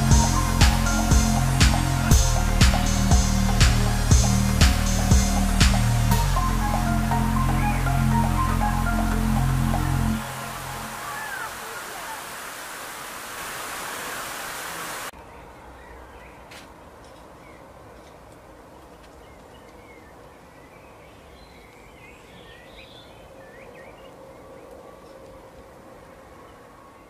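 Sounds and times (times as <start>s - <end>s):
pond water rushing: 0.0s - 15.1s.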